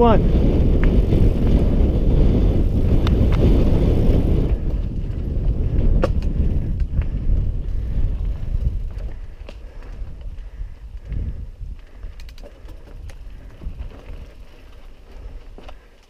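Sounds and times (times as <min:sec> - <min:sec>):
wind rumble on microphone: 0:00.0 - 0:16.0
clicks and rattles of bike: 0:02.8 - 0:16.0
tyres crunching over stones: 0:12.1 - 0:16.0.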